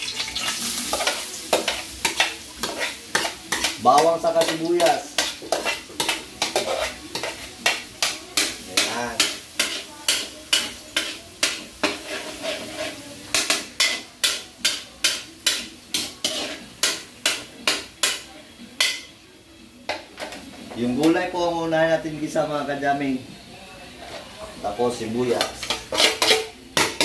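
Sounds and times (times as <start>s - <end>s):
garlic sizzling in oil: 0.0s - 19.1s
spatula scraping metal wok: 0.3s - 18.2s, 23.9s - 27.0s.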